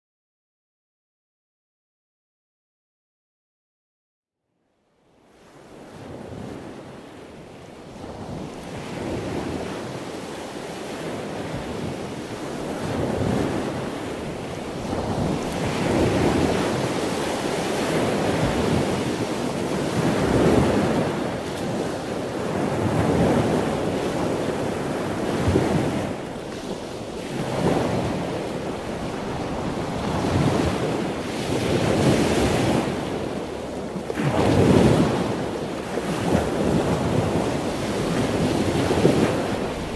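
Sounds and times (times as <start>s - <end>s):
wind: 4.4s - 39.9s
surf breaking on rocks: 12.5s - 39.9s.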